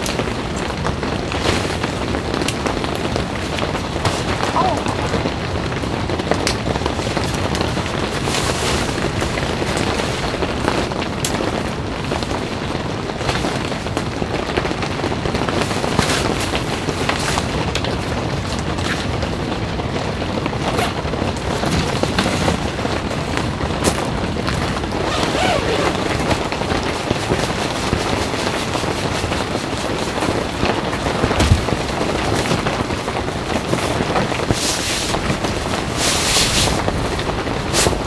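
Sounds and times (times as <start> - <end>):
rain on tent fabric: 0.0 - 38.0
nylon rustling: 24.6 - 32.9.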